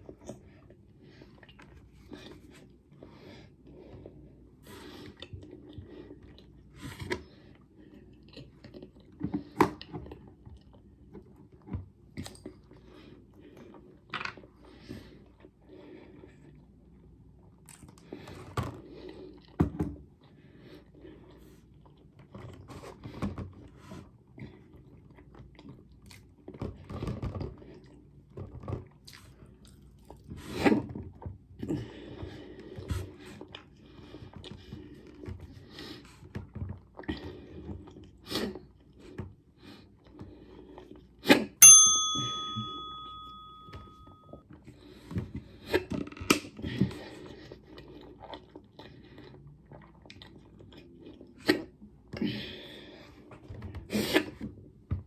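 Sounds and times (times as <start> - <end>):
bell-like metallic ring: 41.6 - 44.4
person chewing: 47.2 - 51.4.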